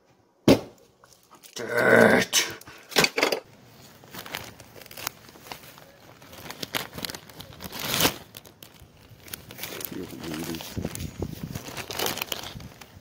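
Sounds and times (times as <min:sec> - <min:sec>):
plastic bag crinkling: 0:03.7 - 0:13.0.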